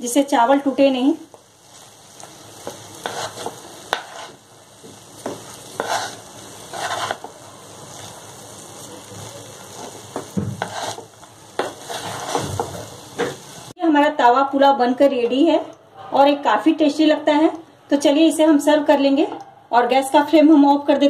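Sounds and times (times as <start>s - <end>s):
faint sizzle from hot pan: 0.0s - 14.4s
wooden spatula scraping a pan: 1.7s - 8.2s, 8.8s - 13.6s.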